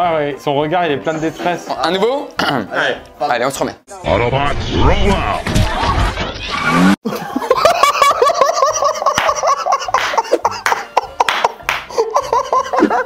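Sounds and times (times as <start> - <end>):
men laughing hard: 7.0 - 13.0.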